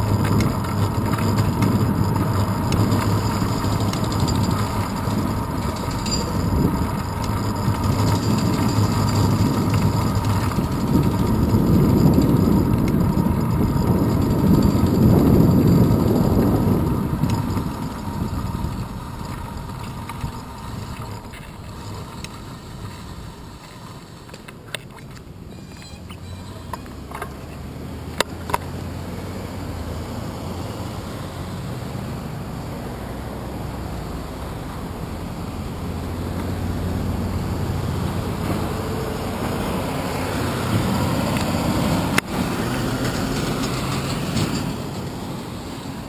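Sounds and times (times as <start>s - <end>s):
wind buffeting: 0.0s - 23.4s
bicycle road rumble: 0.0s - 46.0s.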